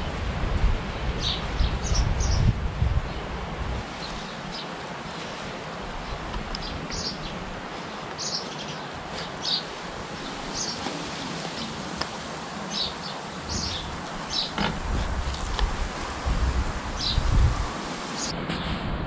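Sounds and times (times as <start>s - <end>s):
outdoor background hiss: 0.0s - 19.0s
small birds chirping: 1.2s - 2.5s, 6.0s - 14.7s.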